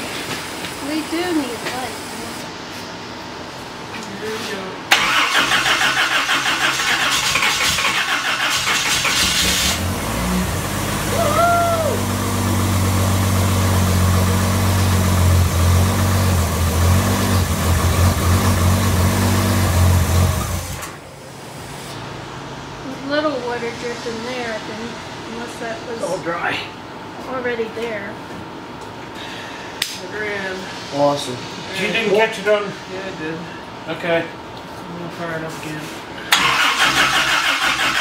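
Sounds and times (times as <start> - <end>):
starter motor cranking: 4.9 - 10.0, 36.3 - 38.0
engine idling: 4.9 - 21.0.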